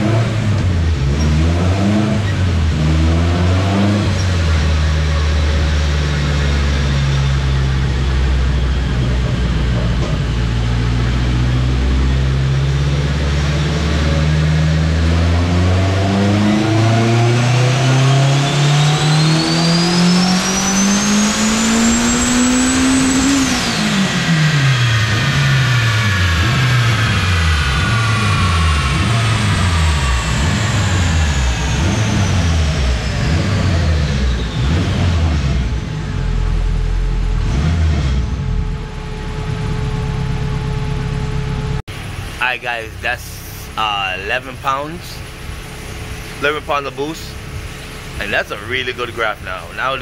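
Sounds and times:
car engine revving on dyno: 0:00.0 - 0:50.0
turbo whine: 0:00.0 - 0:50.0.

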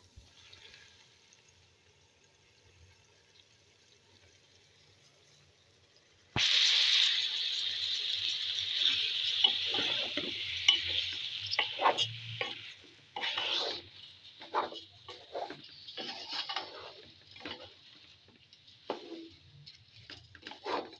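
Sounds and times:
food sizzling in a pot: 0:00.0 - 0:20.9
spatula scraping through rice: 0:08.8 - 0:20.9.

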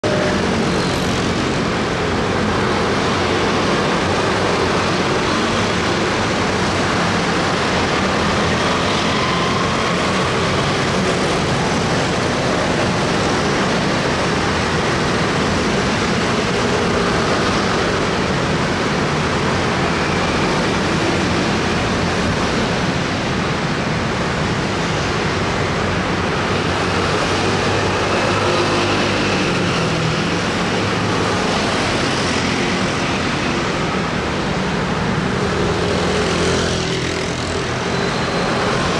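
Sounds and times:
scooters passing: 0:25.0 - 0:38.9.

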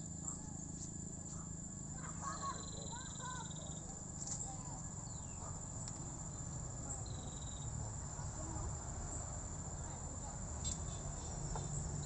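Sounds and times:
insect pulsed trill: 0:00.0 - 0:12.0
insects chirring: 0:00.0 - 0:12.0
rapid insect clicking: 0:02.6 - 0:07.6.

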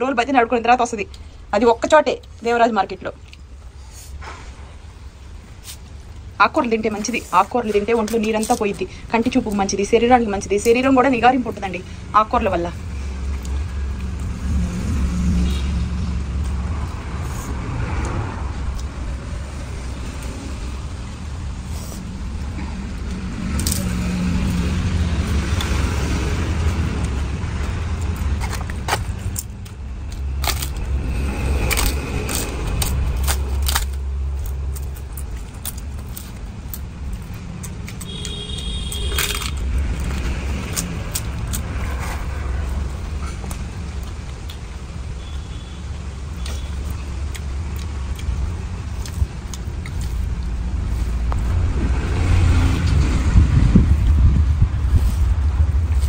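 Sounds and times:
steady low rumble: 0:00.0 - 0:45.2, 0:46.0 - 0:56.0
papads crackling and snapping: 0:28.0 - 0:41.8.

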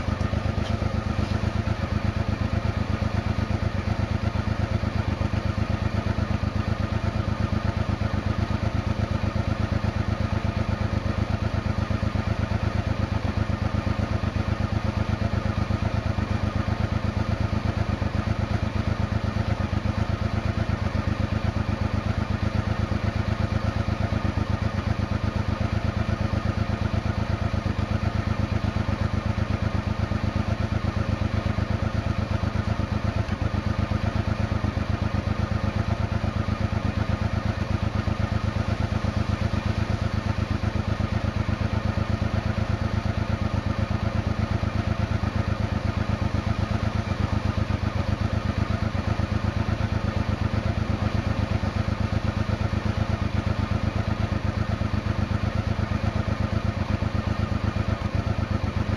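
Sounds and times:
motorcycle engine idling: 0:00.0 - 0:58.9.

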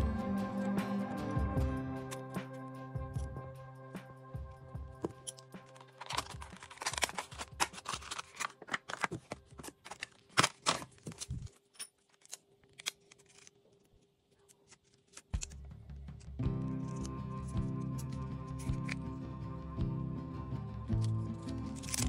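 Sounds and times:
plastic film crackling: 0:05.8 - 0:15.6.

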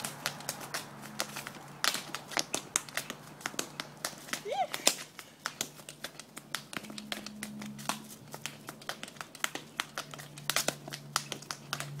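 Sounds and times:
boot heels clicking on pavement: 0:00.0 - 0:12.0.

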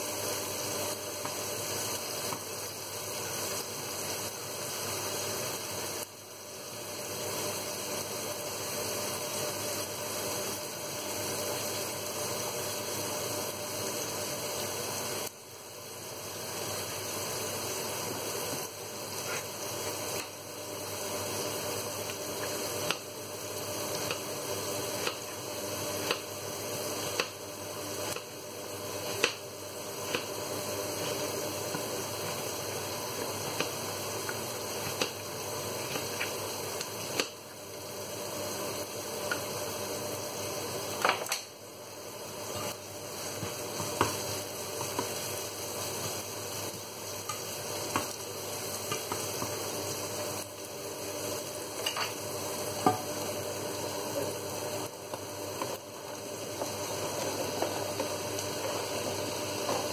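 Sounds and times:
onions sizzling in a frying pan: 0:00.0 - 0:59.9
spatula stirring in a pan: 0:17.6 - 0:39.7, 0:42.3 - 0:50.8.

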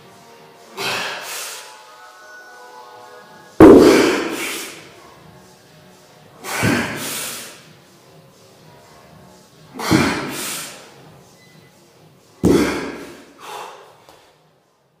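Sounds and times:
dumbbells thudding on rubber floor: 0:03.6 - 0:04.6, 0:12.4 - 0:13.2
hard breathing: 0:12.5 - 0:14.4.

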